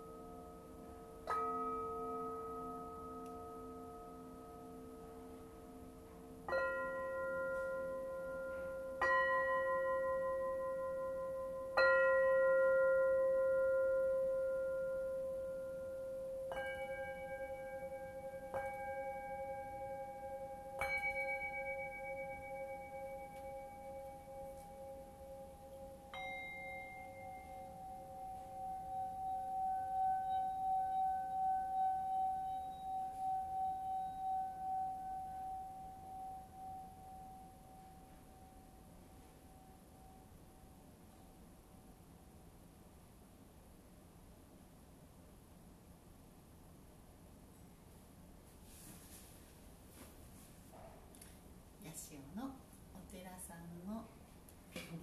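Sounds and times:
singing bowl rim rubbed: 0.0 - 39.9
singing bowls struck with a mallet: 0.0 - 40.4.

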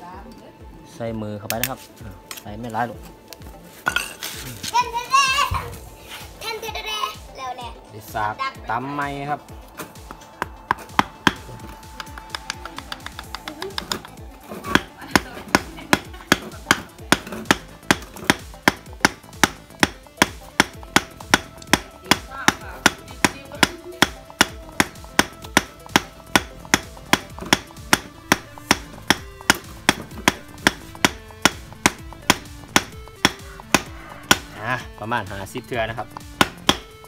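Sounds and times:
wooden club knocking on wooden rod: 10.1 - 34.6.

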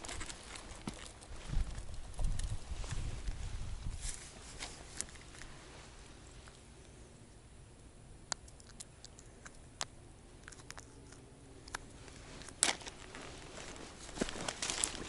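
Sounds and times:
rustling of reeds and clothing: 0.0 - 7.0, 11.8 - 15.0.

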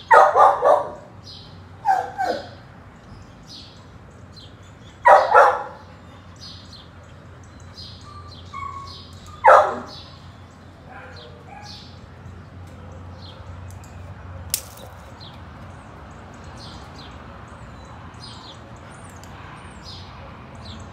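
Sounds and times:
dog barking: 0.0 - 1.1, 1.8 - 2.6, 5.0 - 5.8, 8.7 - 10.1, 10.9 - 11.9.

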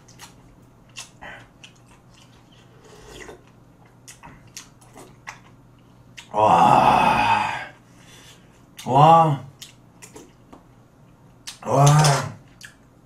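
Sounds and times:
soup sipping: 2.2 - 3.5
mouth smacks of chewing: 9.6 - 10.3.

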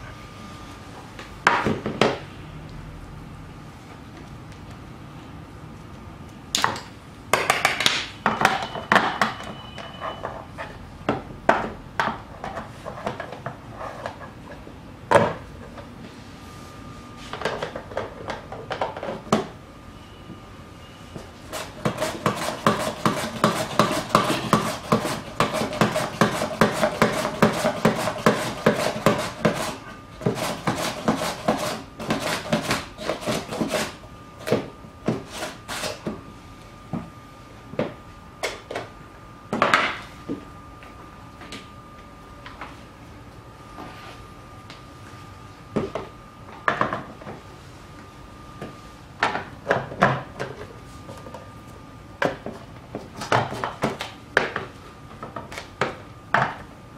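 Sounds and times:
carrot grating on slicer: 21.5 - 34.0.

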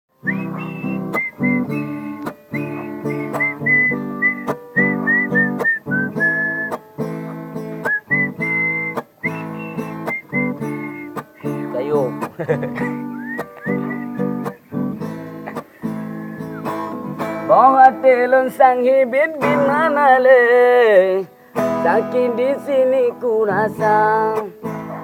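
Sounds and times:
strummed acoustic guitar chords: 0.1 - 25.0
man whistling a melody: 0.2 - 6.9, 7.5 - 12.2, 12.8 - 17.6.

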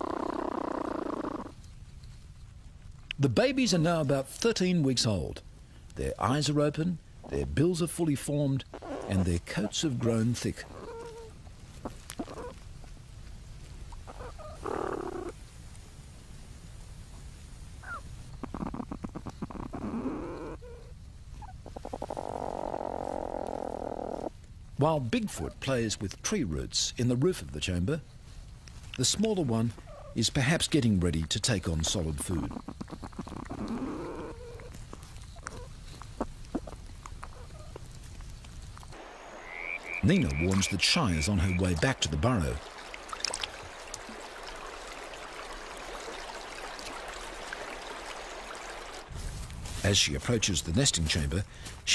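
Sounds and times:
faint squeaky animal calls: 0.0 - 1.5, 8.7 - 9.3, 10.6 - 12.6, 14.0 - 15.3, 17.8 - 24.3, 32.4 - 34.8, 35.4 - 37.8
rising animal call: 0.0 - 1.5, 32.5 - 34.7
rough noisy animal sound: 0.0 - 1.6, 8.4 - 13.2, 13.9 - 15.4, 17.8 - 24.4, 31.7 - 49.1.

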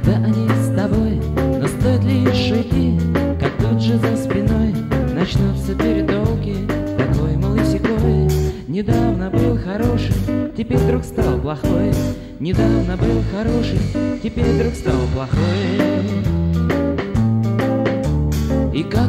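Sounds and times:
pitch-bending lead guitar line: 0.0 - 19.0
rock band playing: 0.0 - 19.0.

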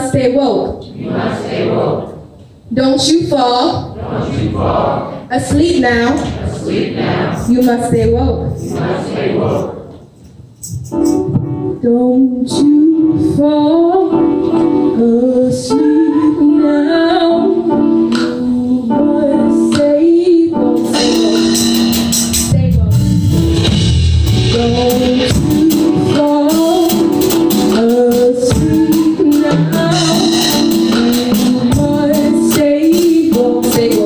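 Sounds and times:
live band music: 0.8 - 2.6, 3.9 - 34.0
woman singing: 11.8 - 21.2, 24.5 - 34.0
heavy bass: 22.5 - 25.8.

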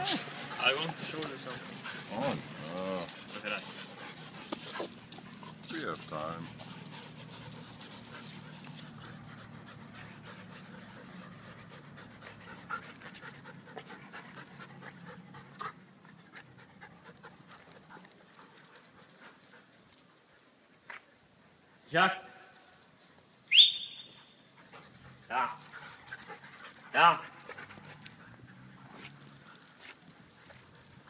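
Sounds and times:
dog panting: 0.0 - 20.4, 24.5 - 31.0.

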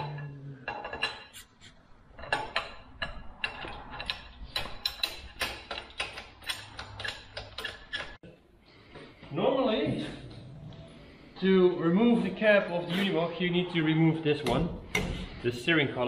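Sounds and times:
hydraulic hand pump clanking: 2.3 - 8.2.

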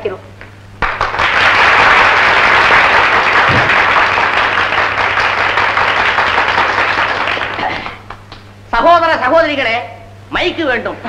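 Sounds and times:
steady low hum: 0.0 - 11.0
audience applauding: 0.8 - 8.4.

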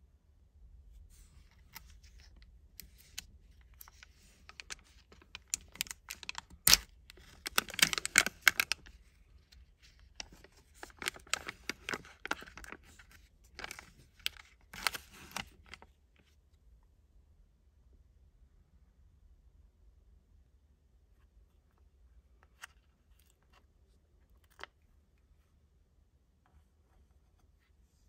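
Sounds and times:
plastic film crinkling: 1.8 - 9.0, 9.7 - 15.9.

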